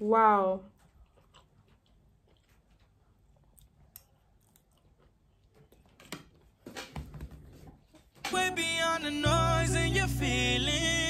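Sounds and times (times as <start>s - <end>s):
chewing pasta: 0.7s - 6.6s.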